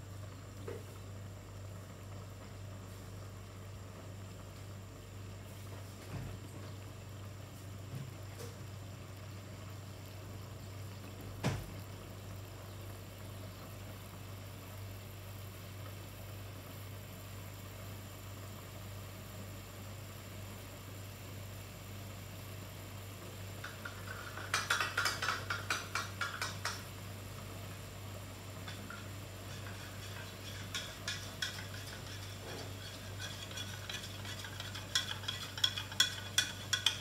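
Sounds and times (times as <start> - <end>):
sauce heating in a frying pan: 0.0 - 37.0
steady low hum: 0.0 - 37.0
sauce popping and bubbling: 23.6 - 37.0.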